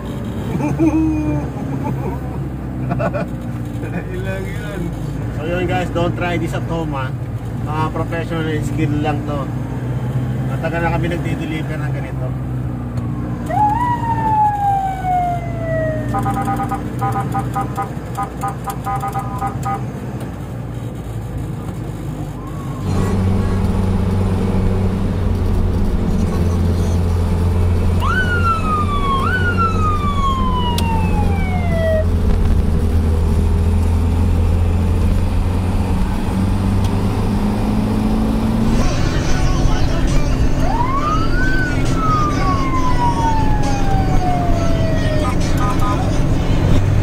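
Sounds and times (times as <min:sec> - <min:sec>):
engine and road drone: 0:00.0 - 0:47.0
ambulance siren wailing: 0:13.0 - 0:19.8, 0:22.3 - 0:23.4, 0:27.9 - 0:32.2, 0:38.6 - 0:46.8.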